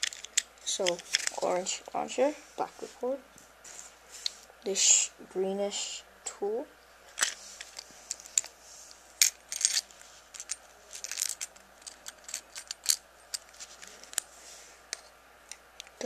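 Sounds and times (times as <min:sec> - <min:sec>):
small plastic and metal parts clicking: 0:00.0 - 0:01.4, 0:09.2 - 0:14.3.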